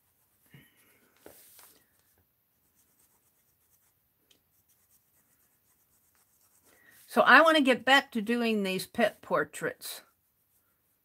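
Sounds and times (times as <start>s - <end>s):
pen scratching on paper: 2.6s - 7.1s.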